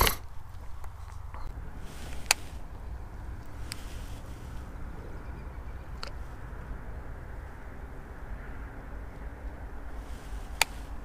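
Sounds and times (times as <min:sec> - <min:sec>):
low wind rumble on microphone: 0:00.0 - 0:11.0
brief rustle: 0:03.4 - 0:04.7, 0:10.0 - 0:11.0
light clicks: 0:10.5 - 0:10.9.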